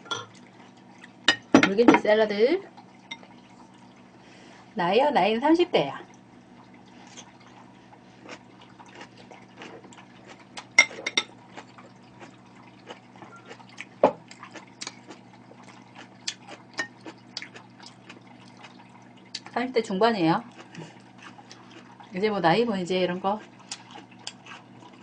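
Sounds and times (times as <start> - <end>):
faint steady hum: 0.0 - 25.0
wet chewing: 6.6 - 19.6, 20.4 - 22.2, 23.3 - 25.0.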